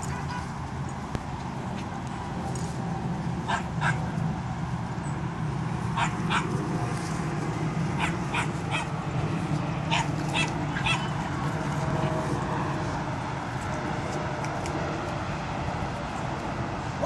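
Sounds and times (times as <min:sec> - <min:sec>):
young dogs yipping: 0:05.9 - 0:06.6, 0:08.0 - 0:09.0, 0:09.9 - 0:11.2.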